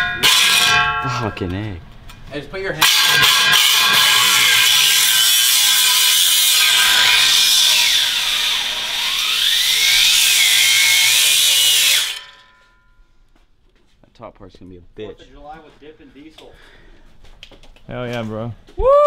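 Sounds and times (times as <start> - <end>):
angle grinder cutting metal pipe: 0.0 - 1.0, 2.8 - 12.7.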